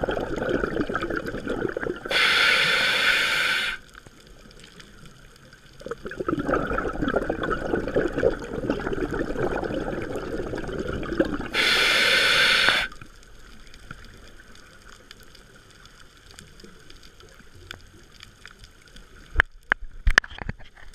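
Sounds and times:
regulator exhale bubbling: 0.0s - 3.9s, 5.8s - 13.0s
demand valve hiss: 2.1s - 3.8s, 11.5s - 13.0s.

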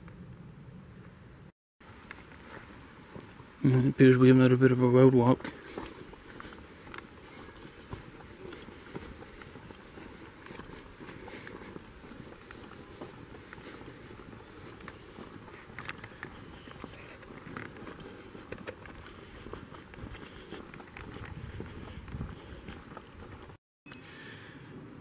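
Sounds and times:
footsteps on wet asphalt: 5.4s - 23.2s.

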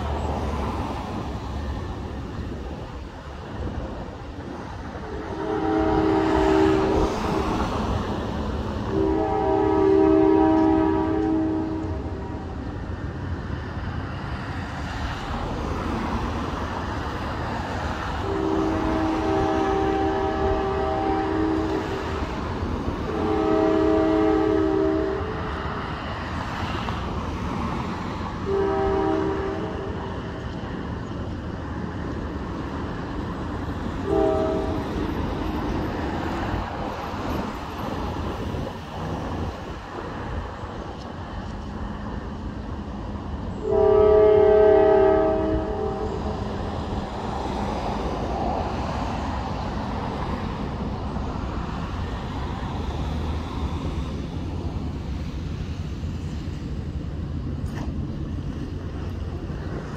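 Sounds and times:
train rumble: 0.0s - 59.9s
locomotive air horn blasts: 5.0s - 7.6s, 8.8s - 12.6s, 18.2s - 22.3s, 23.0s - 25.6s, 28.4s - 30.4s, 34.0s - 35.6s, 43.6s - 46.6s.

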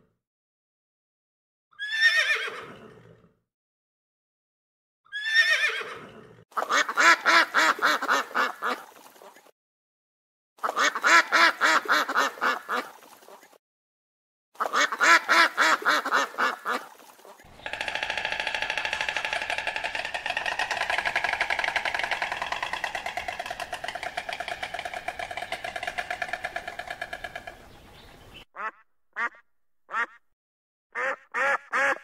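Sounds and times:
steady sound: 17.5s - 27.8s
animal calling: 17.5s - 28.7s.

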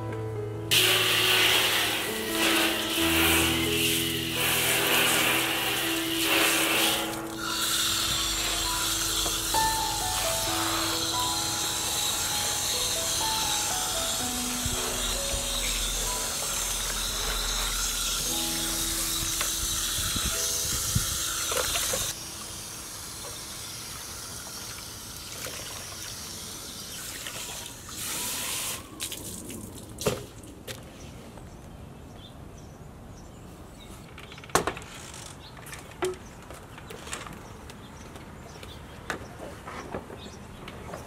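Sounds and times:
water spraying from a hose: 0.7s - 30.4s.

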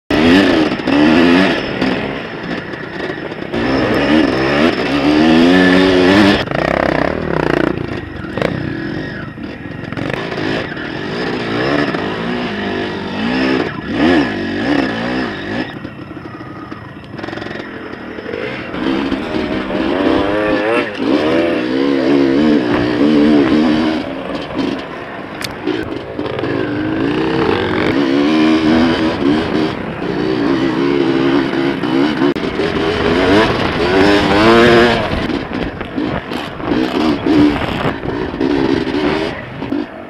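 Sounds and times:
dirt bike engine revving: 0.1s - 40.0s
wind on microphone: 32.5s - 39.7s.

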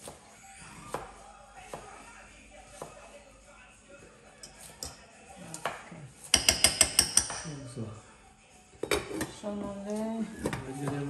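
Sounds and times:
metal spoon tapping cooking pot: 6.3s - 7.5s.

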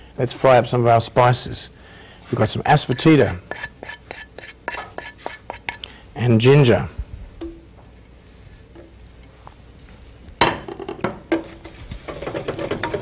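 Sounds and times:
spoon stirring and scraping pan: 2.3s - 6.0s, 10.6s - 13.0s
spices sizzling in hot oil: 2.3s - 6.2s, 7.6s - 13.0s.

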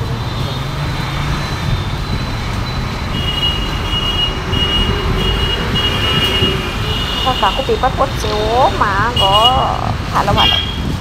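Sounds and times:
traffic engine hum: 0.0s - 11.0s.

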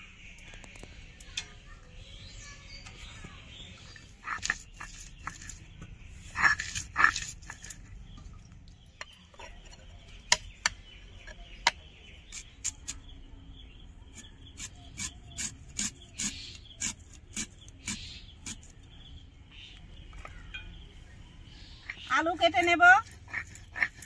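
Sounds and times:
rasping and knocking strokes: 4.2s - 5.7s, 6.3s - 7.8s, 14.2s - 18.7s.

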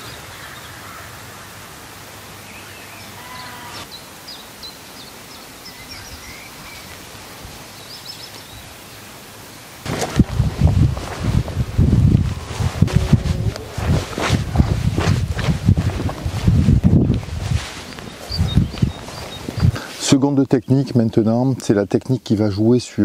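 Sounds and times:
birds chirping: 0.0s - 9.9s, 17.0s - 23.0s
outdoor background noise: 0.0s - 23.0s
boots tramping on manure: 9.9s - 19.8s.

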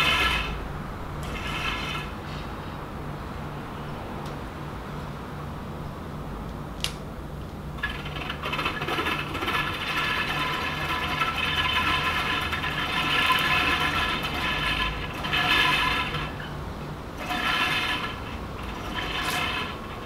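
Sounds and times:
canopy crank rattling whir: 0.0s - 0.6s, 7.8s - 16.5s, 17.2s - 20.0s
single click: 6.8s - 7.0s.

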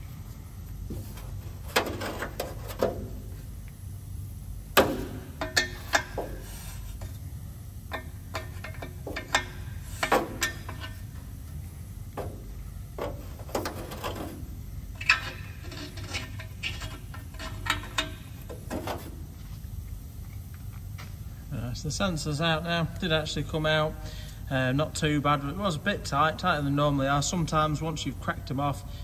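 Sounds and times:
steady low hum: 0.0s - 29.0s
metal scraping on metal: 13.0s - 19.1s.

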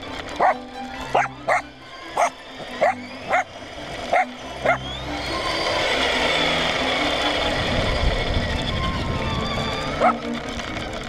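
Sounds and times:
electric motor whining: 0.0s - 11.0s
tyres on gravelly asphalt: 0.0s - 11.0s
dog barking: 0.4s - 1.6s, 2.2s - 3.5s.

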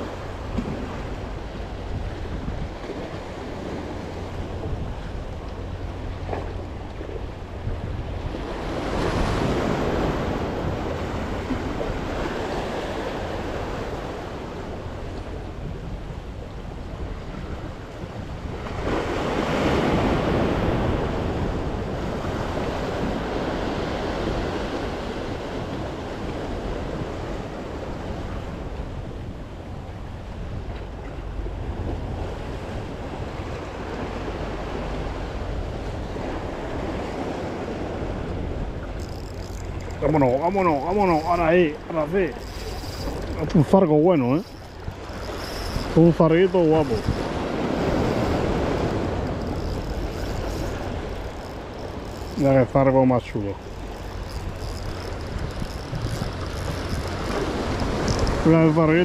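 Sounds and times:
surf washing against rocks: 0.0s - 15.4s, 17.0s - 29.1s, 31.7s - 59.0s
wind buffeting microphone: 0.0s - 59.0s.

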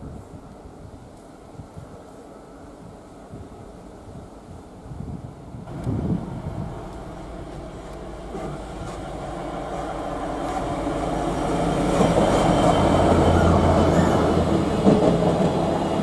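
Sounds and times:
diesel locomotive engine drone: 0.3s - 16.0s
freight wagons rumbling: 5.7s - 16.0s.

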